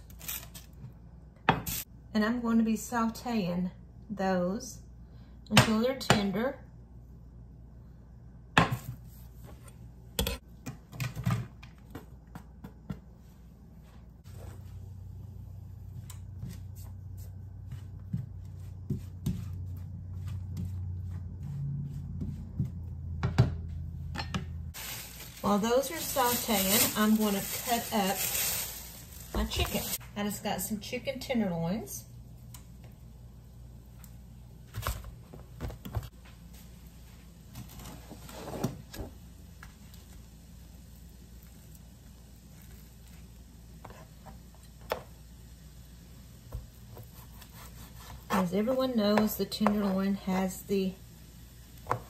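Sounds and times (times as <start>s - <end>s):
vegetables sauteing in butter: 24.7s - 30.0s, 48.1s - 52.0s.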